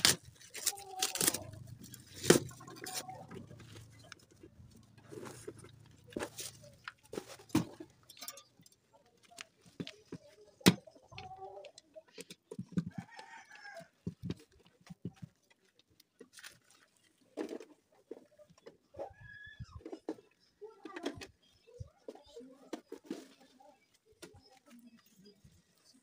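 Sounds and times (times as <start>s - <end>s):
chickens clucking: 0.8s - 9.1s, 10.3s - 14.4s.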